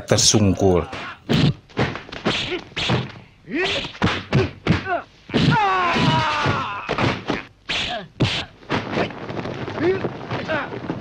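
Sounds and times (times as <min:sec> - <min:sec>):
fighters shouting: 0:02.4 - 0:07.2
punch and kick thuds: 0:03.8 - 0:09.1.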